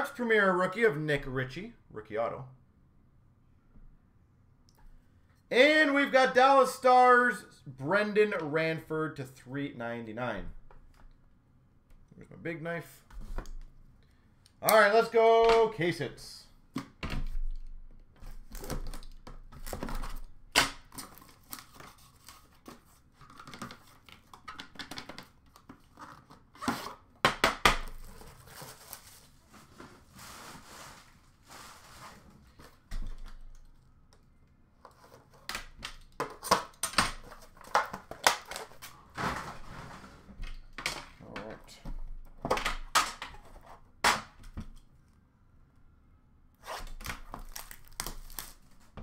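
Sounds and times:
clicks and knocks of box handling: 0:34.8 - 0:38.9
knife slitting shrink wrap: 0:46.6 - 0:48.8
hands tearing cardboard: 0:46.6 - 0:49.0
plastic crinkling: 0:47.2 - 0:48.9.

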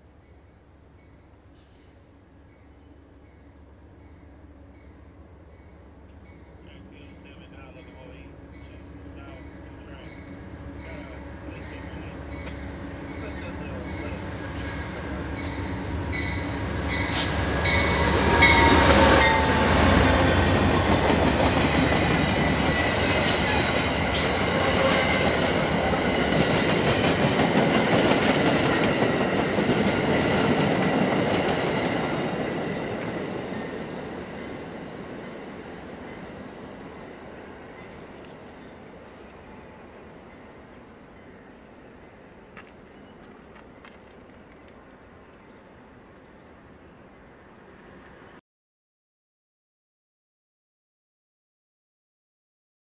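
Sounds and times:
diesel locomotive passing: 0:00.7 - 0:48.4
train cars rolling on rails: 0:03.8 - 0:41.4.

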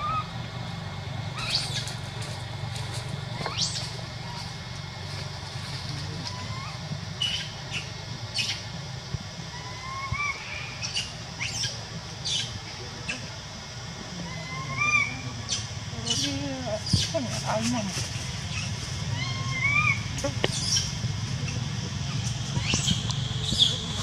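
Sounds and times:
low hum: 0:00.0 - 0:24.0
infant monkey squeaks: 0:03.4 - 0:04.5, 0:06.2 - 0:08.6, 0:21.5 - 0:23.8.

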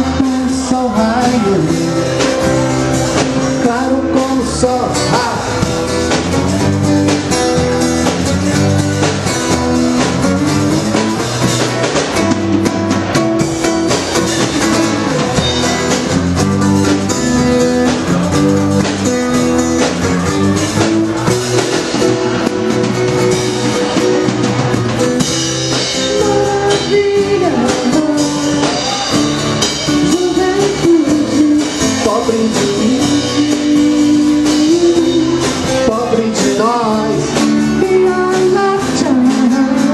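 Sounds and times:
person singing: 0:00.0 - 0:11.2, 0:25.0 - 0:39.9
acoustic guitar: 0:00.0 - 0:39.9
drum kit: 0:00.0 - 0:39.9
electric bass: 0:00.0 - 0:39.9.

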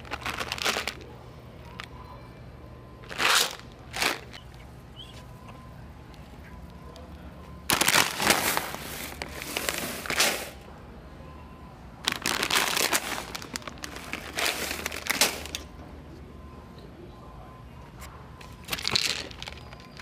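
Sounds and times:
plastic candy bag crinkling: 0:00.0 - 0:01.0, 0:03.0 - 0:04.6, 0:07.7 - 0:10.6, 0:12.0 - 0:15.7, 0:18.5 - 0:20.0.

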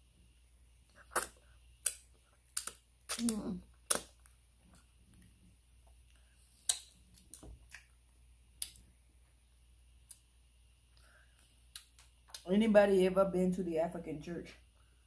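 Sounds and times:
mouth clicks and lip smacks: 0:00.9 - 0:05.3, 0:06.1 - 0:08.0, 0:10.9 - 0:12.5.

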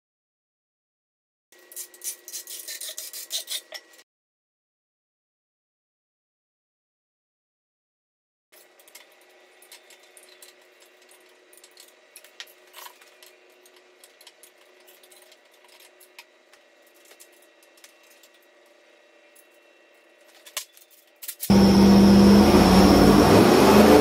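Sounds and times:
low hum of shop equipment: 0:01.5 - 0:04.0, 0:08.5 - 0:24.0.

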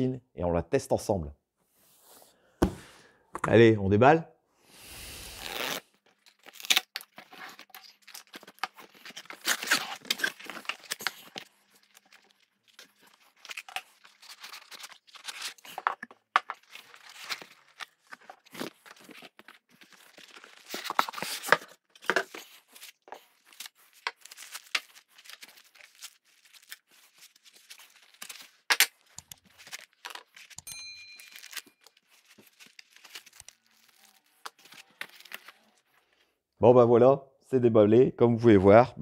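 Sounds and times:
packaging rustling and crinkling: 0:05.4 - 0:36.2.

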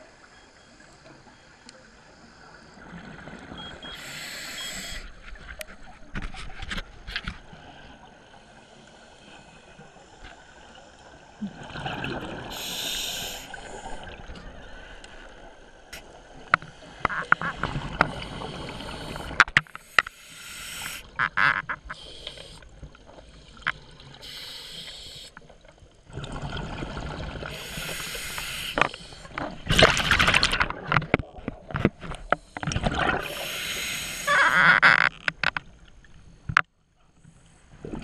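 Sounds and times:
exhaled bubbles rushing: 0:11.5 - 0:12.6, 0:26.1 - 0:27.7, 0:32.7 - 0:33.4.

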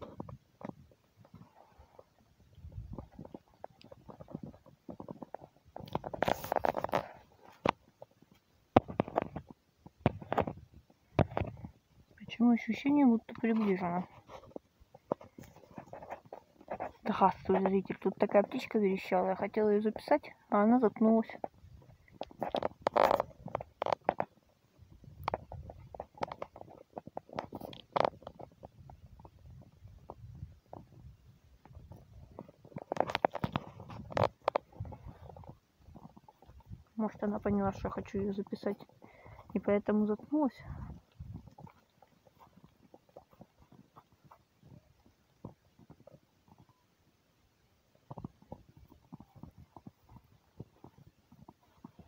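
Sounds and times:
wind rumble on microphone: 0:00.0 - 0:07.6, 0:08.2 - 0:12.5, 0:20.9 - 0:46.8, 0:48.0 - 0:52.0
footsteps through dry grass: 0:02.6 - 0:08.4.

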